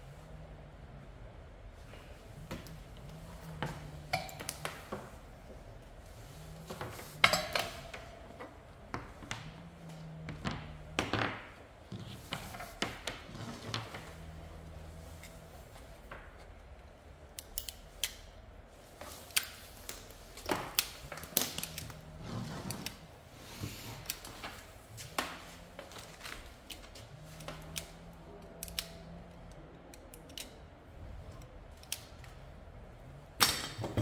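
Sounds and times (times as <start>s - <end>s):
wire stripper snipping and clicking: 4.1s - 5.0s, 17.3s - 18.4s, 26.6s - 30.8s, 31.7s - 32.4s.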